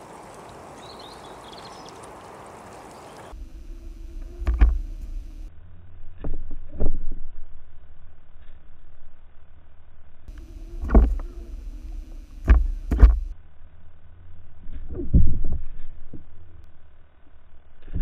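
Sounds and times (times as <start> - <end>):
outdoor water and air noise: 0.0 - 18.0
muffled underwater rumble: 3.3 - 9.5, 10.3 - 18.0
sharp underwater knocks: 4.2 - 5.3, 10.8 - 11.4, 12.4 - 13.3.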